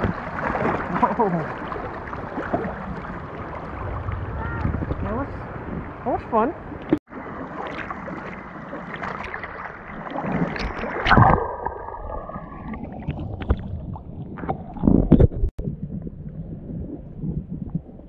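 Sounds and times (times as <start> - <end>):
creek water rushing and splashing: 0.0 - 13.5.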